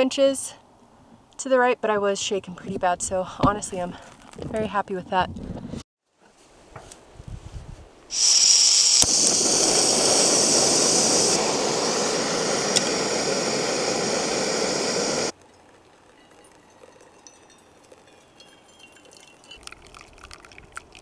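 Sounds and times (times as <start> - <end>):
gas hissing from stove: 8.1 - 15.3
burner hissing: 8.1 - 15.4.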